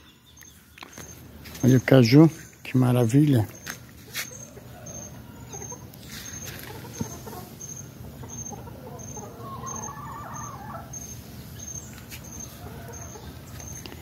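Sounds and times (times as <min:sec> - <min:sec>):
faint bird calls: 0:03.5 - 0:14.0.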